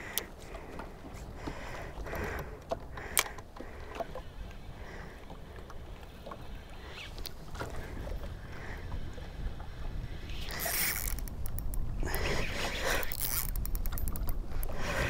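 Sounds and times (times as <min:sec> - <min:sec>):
wind and water noise: 0:00.0 - 0:15.0
fishing reel ticking: 0:09.9 - 0:15.0.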